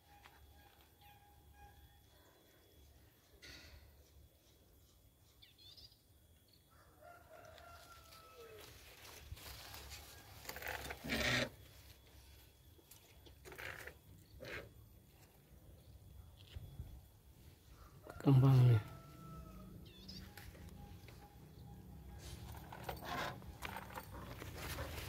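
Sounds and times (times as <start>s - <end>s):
rooster crowing: 6.7s - 10.6s, 17.7s - 20.9s
rustling brushing noises: 7.8s - 11.1s, 22.2s - 25.0s.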